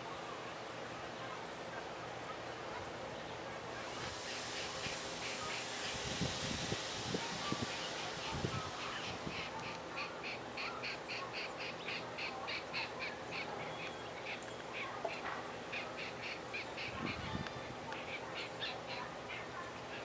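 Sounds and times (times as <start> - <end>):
crane chicks peeping: 2.3 - 20.0.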